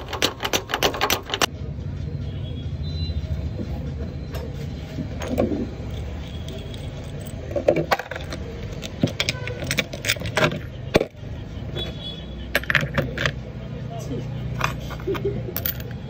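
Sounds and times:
metal clutch parts clinking: 0:05.3 - 0:11.1, 0:14.5 - 0:16.0.

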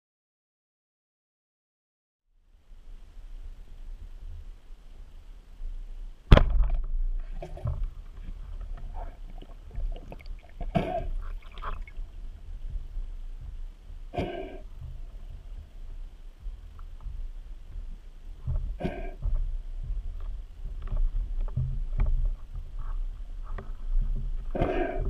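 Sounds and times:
speargun firing underwater: 0:06.3 - 0:06.9
gurgling water: 0:07.2 - 0:22.8.

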